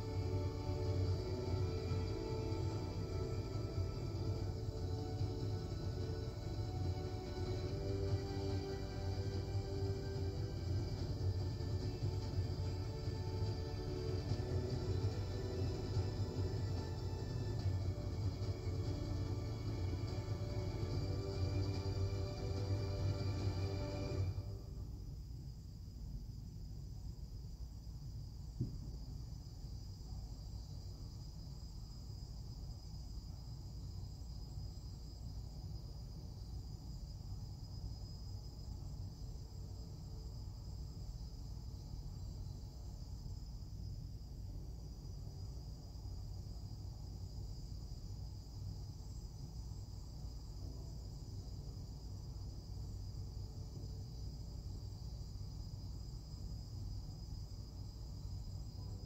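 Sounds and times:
low rumble: 0.0 - 25.2
high-pitched whine: 0.0 - 25.5.

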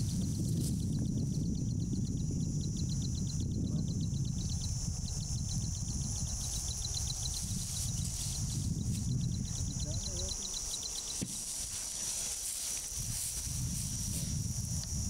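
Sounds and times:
insects chirping: 0.0 - 15.0
steady high hiss: 3.8 - 15.0.

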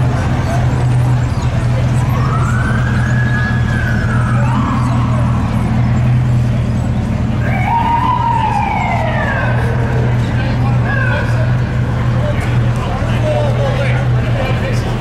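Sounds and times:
siren wailing: 2.0 - 5.9, 7.4 - 10.2.

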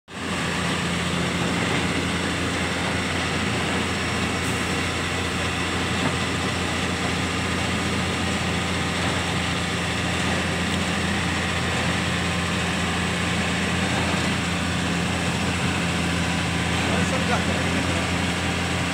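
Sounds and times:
diesel engine running steadily: 0.1 - 18.9.

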